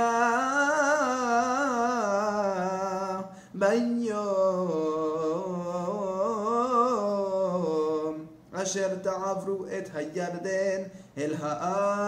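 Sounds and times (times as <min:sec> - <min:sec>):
man chanting: 0:00.0 - 0:12.0
breath: 0:03.3 - 0:03.6, 0:10.9 - 0:11.2.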